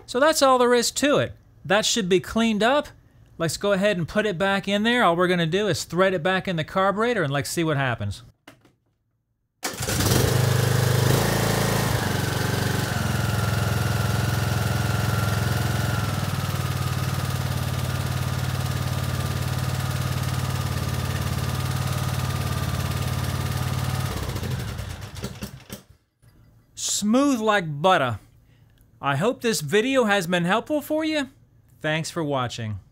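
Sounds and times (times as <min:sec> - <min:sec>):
mower engine starting and running: 0:09.6 - 0:26.0.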